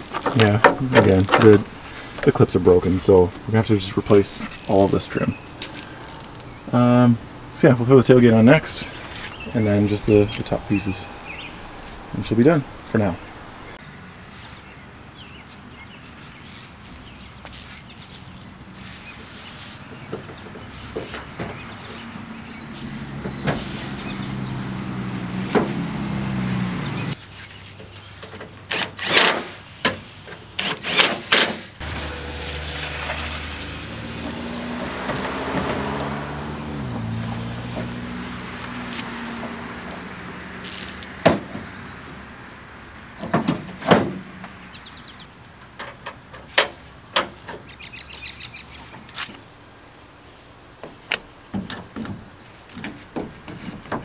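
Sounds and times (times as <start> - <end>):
low vehicle hum: 0.0 - 27.9, 31.8 - 46.3.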